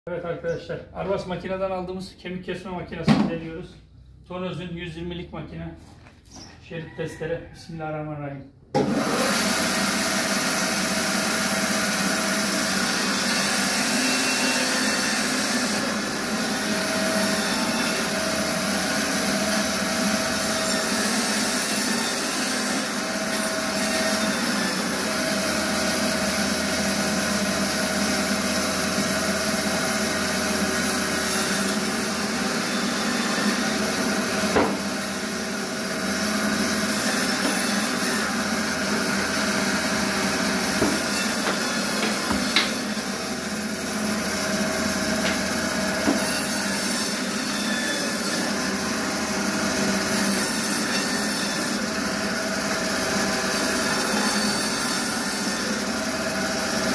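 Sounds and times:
band saw cutting meat and bone: 8.8 - 56.9
sharp knock: 34.5 - 34.8.

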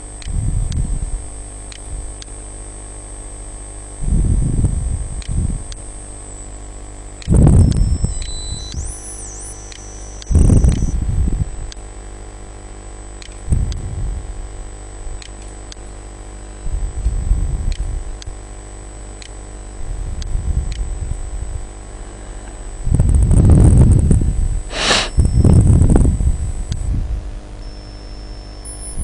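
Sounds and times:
mains hum and hiss: 0.0 - 29.0
low rumbles on microphone: 0.3 - 1.3.

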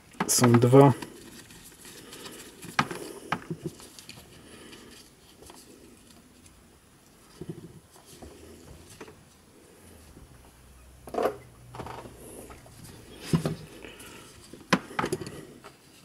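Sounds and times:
small plastic parts clicking and scraping: 0.1 - 9.4.

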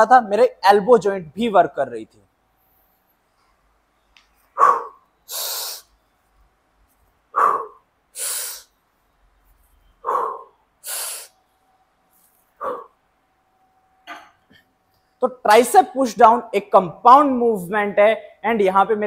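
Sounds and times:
man breathing hard: 4.6 - 5.9, 7.4 - 8.8, 10.0 - 11.4.

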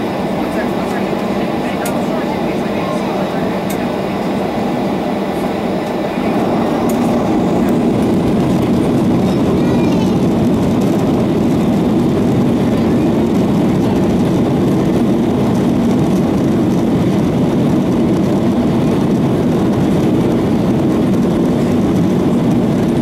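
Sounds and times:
jet engines at take-off thrust: 0.0 - 23.0.

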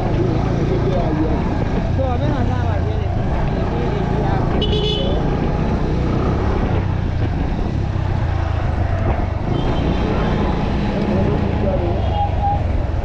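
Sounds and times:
road and wind rumble: 0.0 - 13.0.

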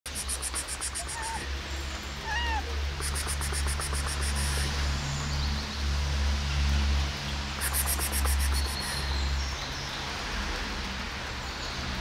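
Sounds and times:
cat meowing: 0.6 - 1.5, 2.2 - 3.2.

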